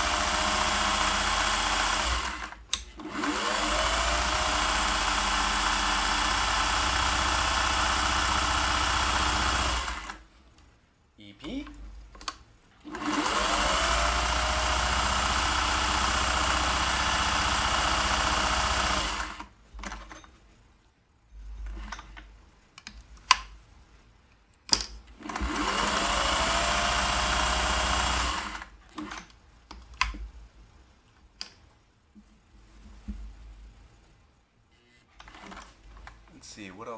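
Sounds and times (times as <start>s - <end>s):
sewing machine running: 0.0s - 10.2s, 12.8s - 19.5s, 25.2s - 29.2s.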